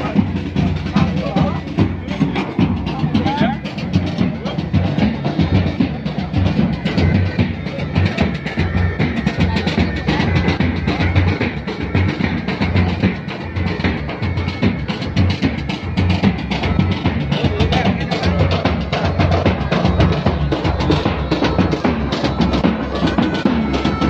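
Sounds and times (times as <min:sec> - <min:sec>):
loud music with heavy drumming: 0:00.0 - 0:24.0
pounding bass drum: 0:00.0 - 0:24.0.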